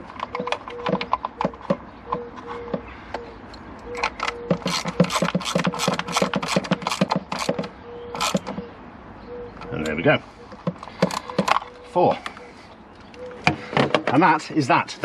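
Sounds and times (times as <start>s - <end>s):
hand ratchet clicking: 4.0s - 7.6s.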